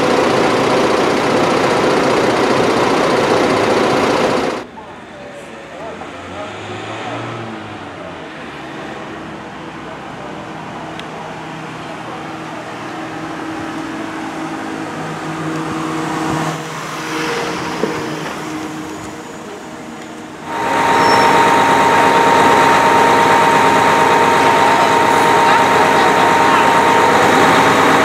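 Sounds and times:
high steady whine: 0.0s - 4.7s, 15.6s - 28.0s
fire engine idling: 0.0s - 6.0s, 17.4s - 28.0s.

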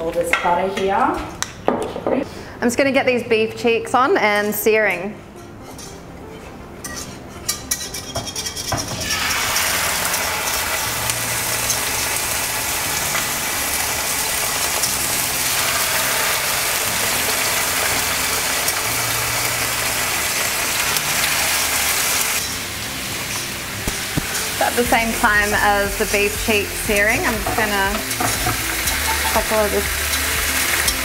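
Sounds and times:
meat sizzling in frying pan: 9.0s - 31.0s
meat knocking into pan: 23.8s - 24.4s.

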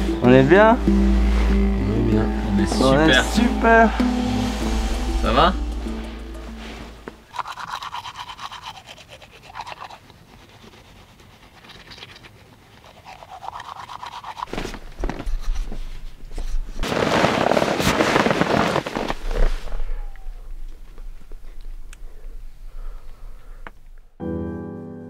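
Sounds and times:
nylon fabric rustling: 14.5s - 19.7s.

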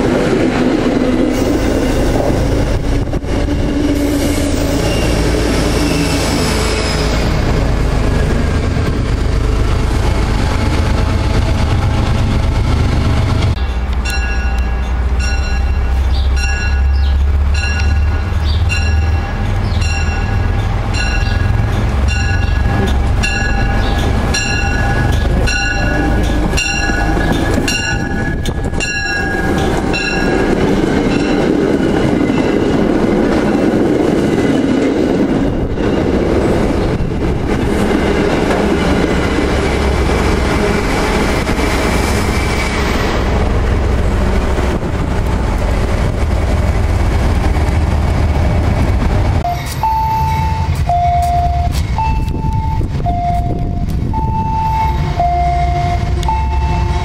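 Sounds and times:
train coaches rumbling past: 0.0s - 57.0s
train bell ringing: 13.5s - 33.9s, 49.4s - 57.0s
two-tone beeping: 49.5s - 56.9s.

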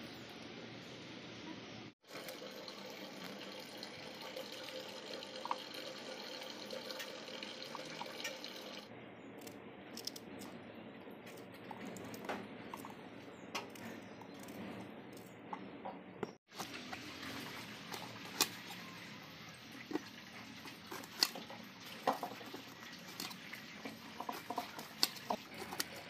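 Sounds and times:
tap water running onto steel plate: 2.1s - 8.9s, 19.9s - 25.4s.

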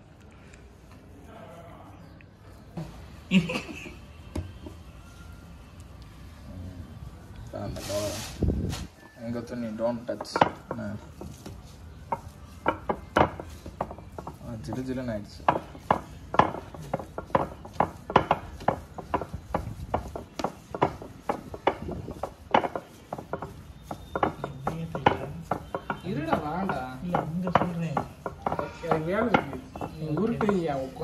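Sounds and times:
dough rubbing and handling: 2.0s - 31.0s
dough knocking on kitchen surface: 9.8s - 31.0s.

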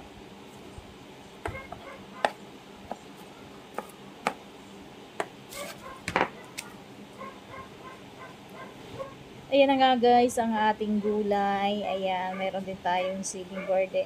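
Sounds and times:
knife chopping on plastic board: 3.7s - 4.4s.

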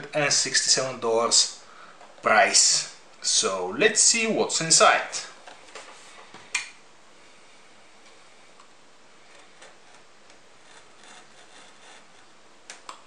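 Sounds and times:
utility knife scraping cardboard: 10.6s - 12.3s.

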